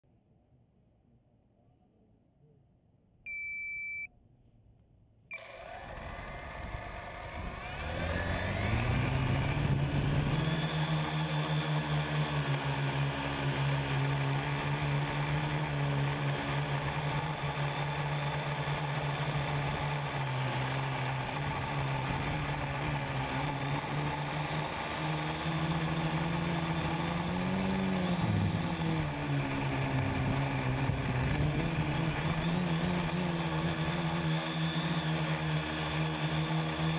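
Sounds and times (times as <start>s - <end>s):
short electronic beep: 3.3s - 4.2s
quadcopter motors droning: 5.3s - 36.9s.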